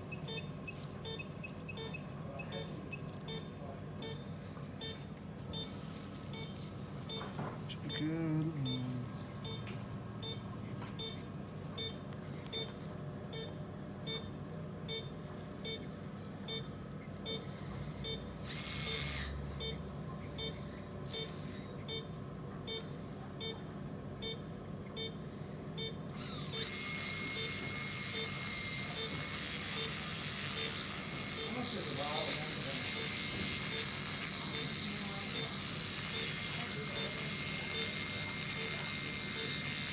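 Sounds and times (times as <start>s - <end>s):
monitor beeping: 0.0s - 22.1s, 24.2s - 25.2s, 25.8s - 39.9s
dental scaler whining: 18.4s - 19.4s, 26.2s - 39.9s.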